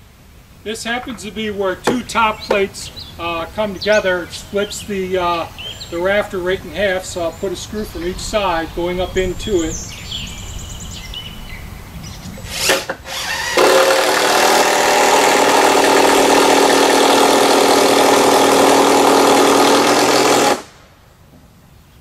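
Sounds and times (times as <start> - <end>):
power drill driving screw: 12.5 - 20.7.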